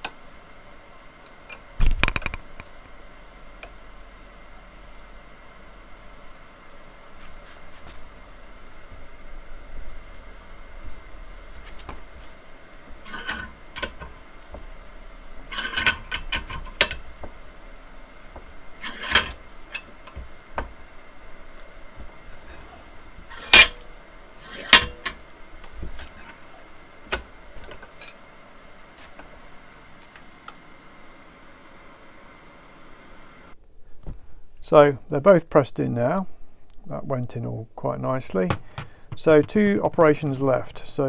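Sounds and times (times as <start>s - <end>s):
metal parts clinking: 13.0s - 14.2s, 15.4s - 17.2s, 18.7s - 20.2s, 23.3s - 23.8s, 24.4s - 25.2s.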